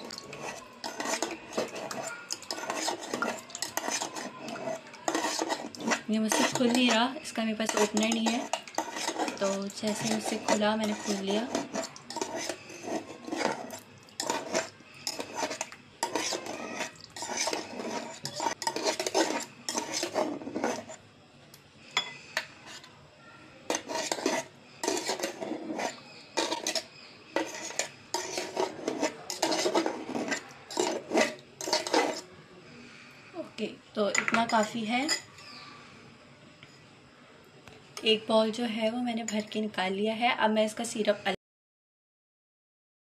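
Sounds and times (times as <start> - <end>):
metal spoon scraping tin can: 0.0 - 21.0, 23.7 - 32.3.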